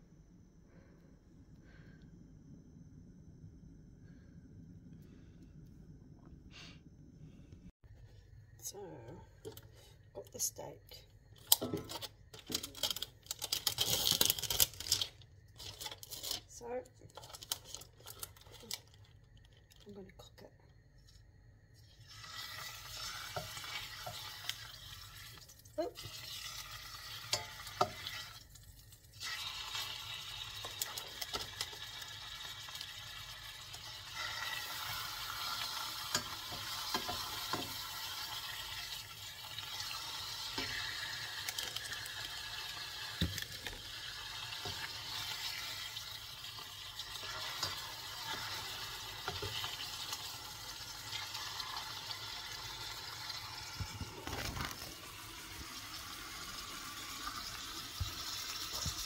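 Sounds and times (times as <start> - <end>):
steak sizzling in frying pan: 22.1 - 25.4, 26.1 - 54.2.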